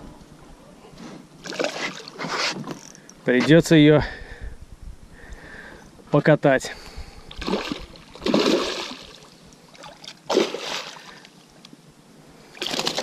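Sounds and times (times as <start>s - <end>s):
fish thrashing and splashing: 7.4s - 11.3s, 12.6s - 13.0s.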